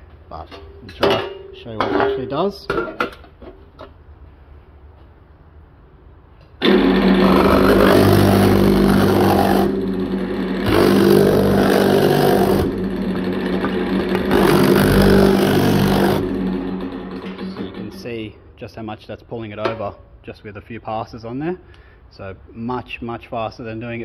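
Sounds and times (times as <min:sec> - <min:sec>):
metal-shaping machine hammering: 0:06.6 - 0:18.0.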